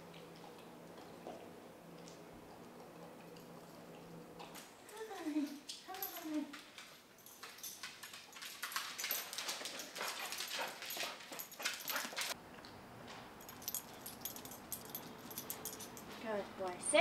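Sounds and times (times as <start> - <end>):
dog claws clicking on wood floor: 5.7 - 12.4.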